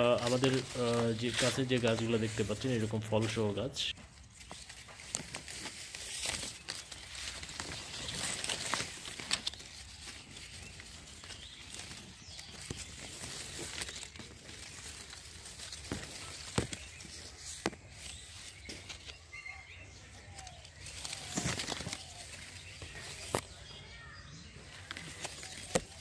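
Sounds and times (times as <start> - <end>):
leaves and twigs rustling: 0.0 - 26.0
branch clicks and snaps: 4.4 - 19.2, 20.1 - 23.6, 24.7 - 26.0.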